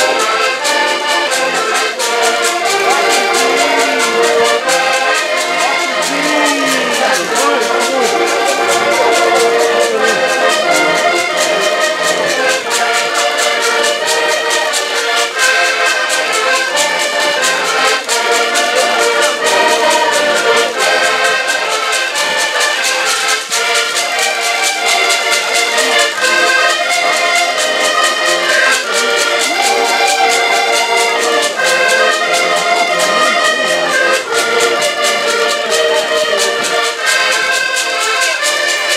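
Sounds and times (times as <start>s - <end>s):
accordions playing: 0.0s - 38.9s
trombone playing: 2.0s - 13.9s.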